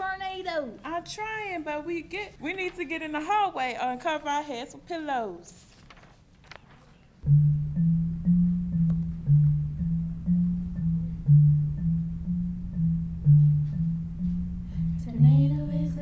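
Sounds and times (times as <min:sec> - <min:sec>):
low repeating music pattern: 0:07.2 - 0:16.0
person singing: 0:14.7 - 0:16.0.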